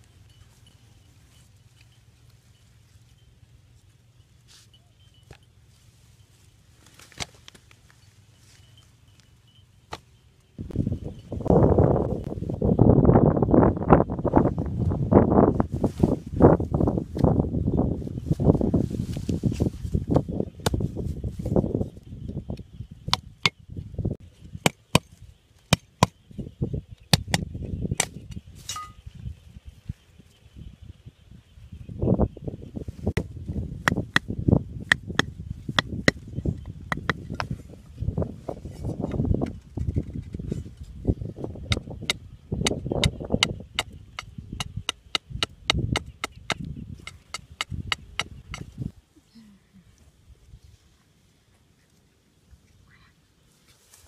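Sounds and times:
rustling and handling noise: 0:00.0 - 0:10.2, 0:18.2 - 0:21.6, 0:53.5 - 0:54.0
machete chopping wooden stick: 0:33.9 - 0:34.3.

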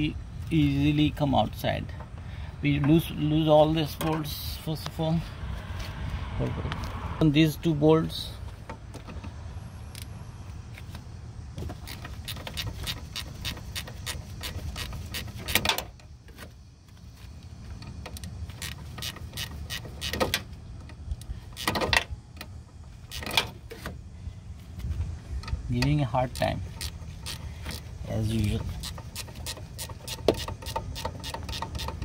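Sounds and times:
ratchet wrench clicking: 0:11.8 - 0:15.8, 0:18.1 - 0:22.0, 0:23.1 - 0:23.5, 0:25.5 - 0:32.0.

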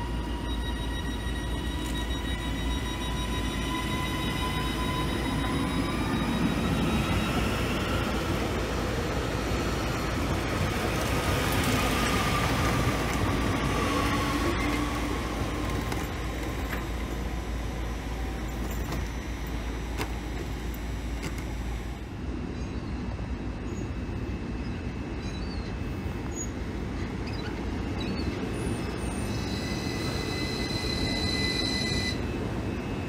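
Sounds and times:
train wheels rumbling: 0:00.0 - 0:22.0
train motor whine: 0:00.0 - 0:22.2, 0:28.6 - 0:33.0.

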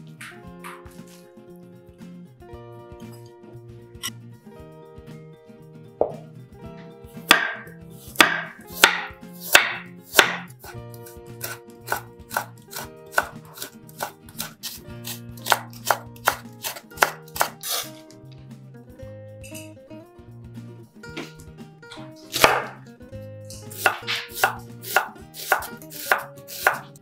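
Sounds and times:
knife chopping carrot on board: 0:07.2 - 0:18.0, 0:22.3 - 0:22.8, 0:23.5 - 0:27.0.

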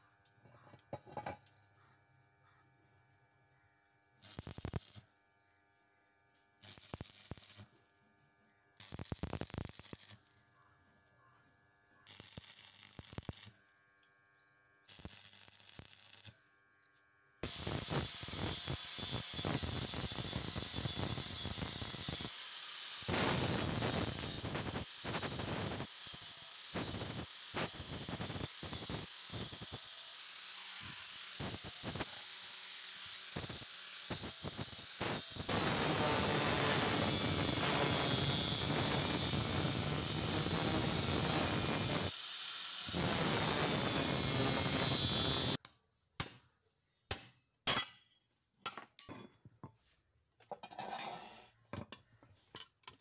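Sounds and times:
welding arc crackle: 0:04.2 - 0:05.2, 0:06.6 - 0:08.0, 0:08.8 - 0:11.1, 0:12.0 - 0:13.8, 0:14.8 - 0:16.6, 0:17.4 - 0:45.6
angle grinder whining: 0:17.0 - 0:45.6.

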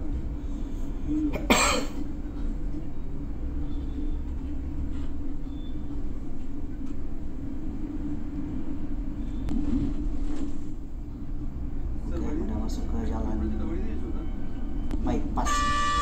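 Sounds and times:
bus engine rumble: 0:00.0 - 0:16.0
road noise: 0:00.0 - 0:16.0
person coughing: 0:01.3 - 0:02.0.

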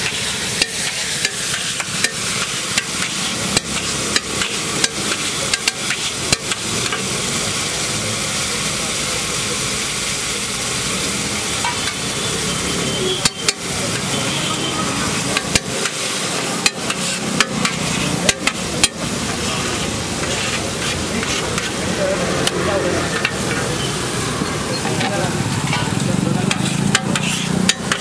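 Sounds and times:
gravy sizzling on griddle: 0:00.0 - 0:28.0
metal spatula clacking on iron: 0:00.6 - 0:07.1, 0:13.2 - 0:14.1, 0:15.3 - 0:19.0, 0:26.5 - 0:28.0.

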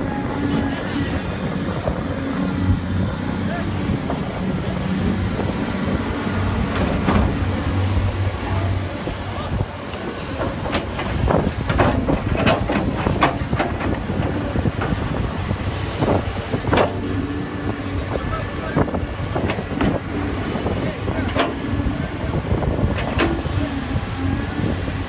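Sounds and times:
excavator diesel engine running: 0:00.0 - 0:25.0
bucket clanking and scraping: 0:10.0 - 0:15.1.

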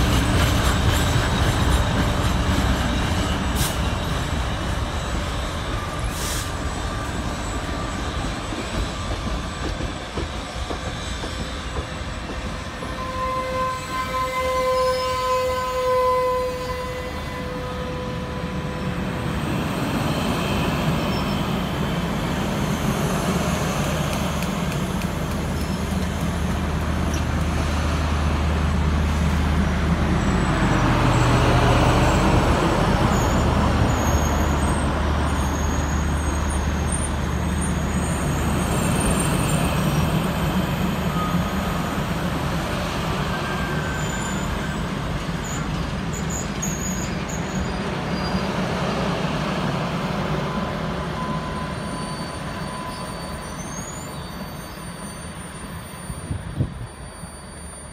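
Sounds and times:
train wheels rumbling on rails: 0:00.0 - 0:57.9
distant locomotive whistle: 0:12.4 - 0:19.4, 0:40.8 - 0:42.2, 0:50.5 - 0:57.9.

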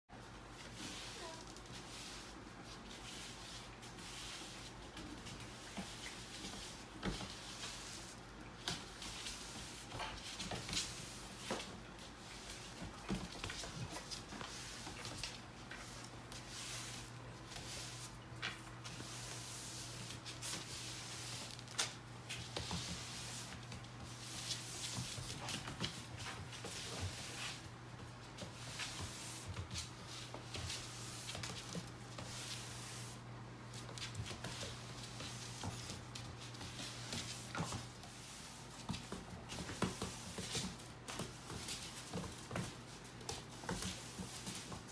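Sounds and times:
broom swishing on floor: 0:00.2 - 0:44.9.

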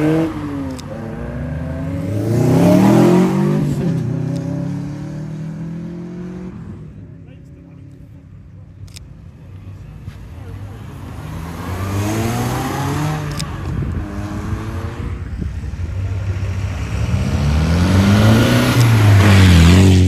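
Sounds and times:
car accelerating away: 0:00.0 - 0:06.7, 0:11.1 - 0:15.2, 0:16.2 - 0:20.0
car revving and driving off: 0:00.0 - 0:08.0, 0:09.0 - 0:20.0.

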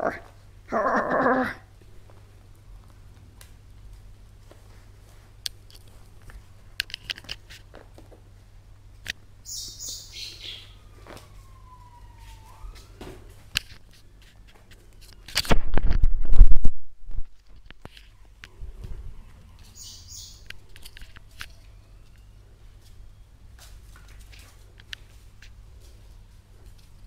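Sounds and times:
microphone handling noise: 0:15.4 - 0:17.6.

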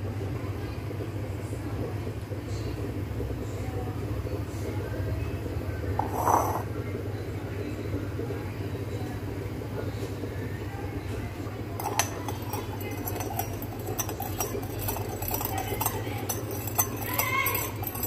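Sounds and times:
metal spoon clinking on bowl: 0:11.8 - 0:18.0.

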